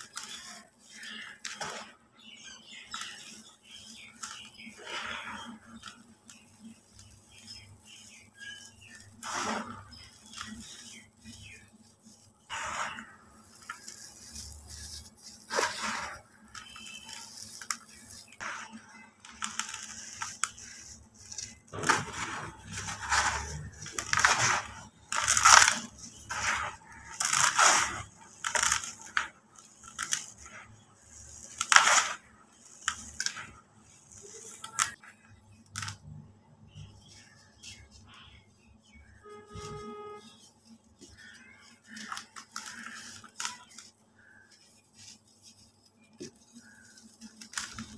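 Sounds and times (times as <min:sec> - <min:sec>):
sharp crackling bursts: 0:02.9 - 0:35.0.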